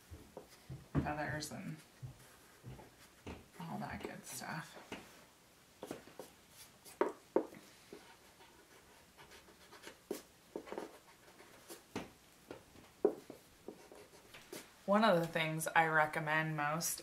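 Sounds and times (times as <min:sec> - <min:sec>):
pencil scratching on paper: 0:07.9 - 0:11.8, 0:13.3 - 0:14.6.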